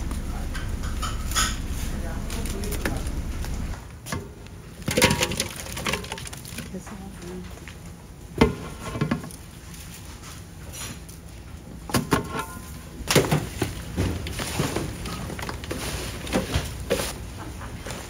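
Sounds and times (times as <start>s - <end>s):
rustling of fish being mixed: 1.6s - 3.7s, 4.6s - 7.7s, 13.4s - 17.2s.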